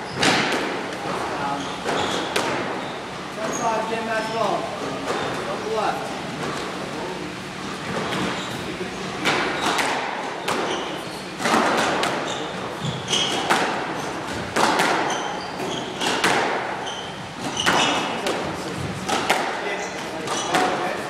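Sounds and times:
squash ball hits: 0.1 - 1.1, 1.8 - 2.8, 9.2 - 21.0
shoes squeaking on wooden floor: 1.4 - 5.5, 7.8 - 8.7, 10.4 - 11.3, 12.1 - 14.2, 15.0 - 16.2, 16.8 - 18.2.

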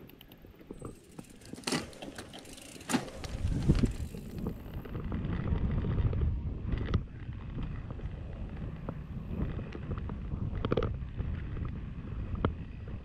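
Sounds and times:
sharp clicks: 0.0 - 1.0
bike tyres rolling over dirt: 0.0 - 13.0
tyre and wind rumble: 0.0 - 13.0
bike parts rattling: 0.1 - 5.4.

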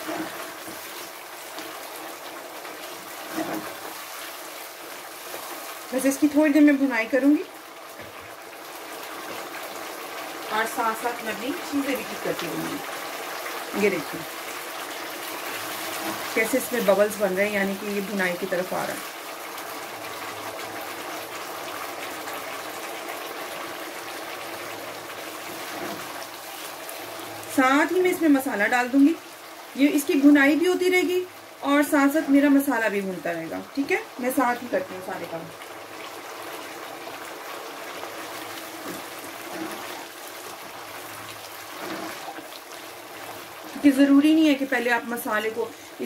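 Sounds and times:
thick gravy bubbling in a pan: 0.0 - 46.0
wooden spoon stirring: 38.5 - 40.6.

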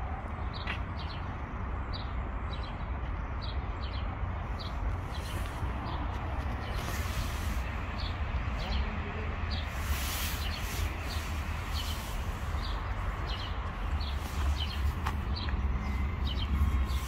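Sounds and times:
soft rushing noises: 4.6 - 17.0
bird chirping: 9.5 - 17.0.

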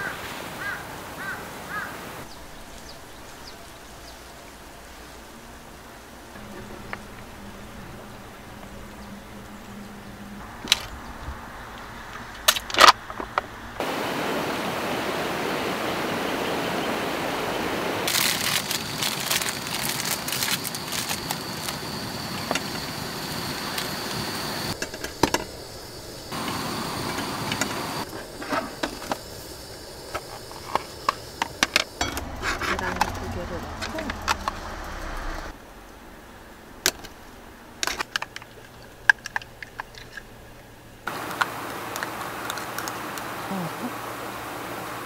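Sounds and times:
rain hiss: 0.0 - 45.0
gas stove burner hissing: 20.1 - 35.6.

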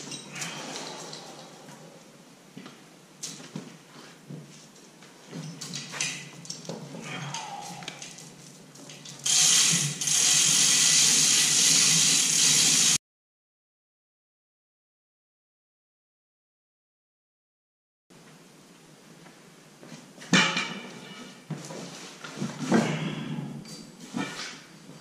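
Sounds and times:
tools and metal parts clinking: 0.0 - 1.5.

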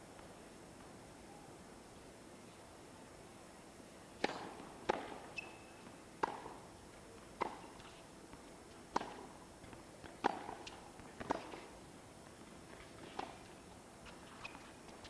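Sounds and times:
tennis ball struck by rackets: 4.2 - 5.5, 6.2 - 6.6, 7.4 - 7.8, 8.9 - 9.3, 10.0 - 11.6, 13.1 - 13.4.

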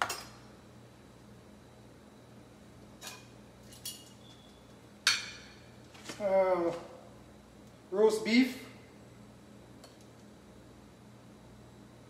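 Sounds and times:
low steady hum: 0.0 - 12.0
metal tongs clinking on plates: 3.0 - 4.4.

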